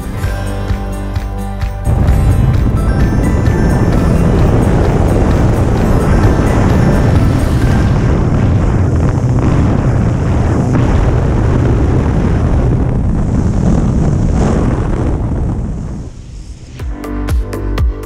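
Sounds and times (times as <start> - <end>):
propeller plane engine droning: 1.9 - 16.2
wind buffeting microphone: 1.9 - 16.8.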